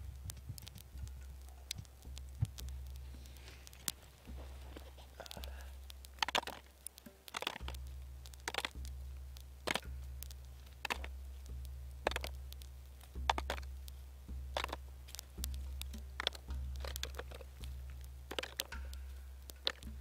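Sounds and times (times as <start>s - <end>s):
nuts knocking into container: 3.9s - 7.8s, 8.4s - 8.8s, 9.6s - 9.9s, 10.8s - 11.1s, 12.0s - 12.4s, 13.2s - 13.7s, 14.5s - 14.8s, 15.5s - 17.6s, 18.3s - 18.9s, 19.5s - 20.0s.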